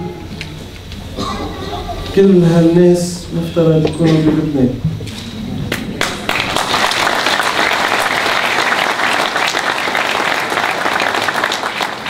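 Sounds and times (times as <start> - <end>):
audience applause: 5.7 - 12.0.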